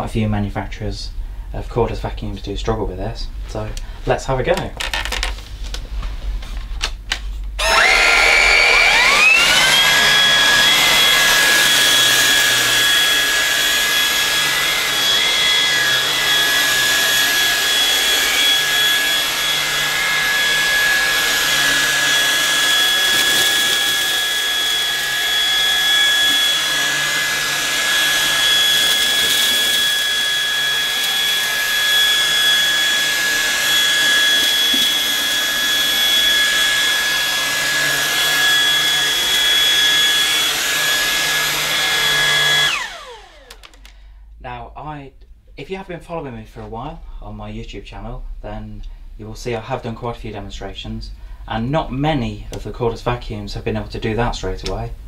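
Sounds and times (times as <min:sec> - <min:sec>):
vacuum head over carpet: 0:07.6 - 0:43.9
stick vacuum motor whine: 0:07.6 - 0:44.0.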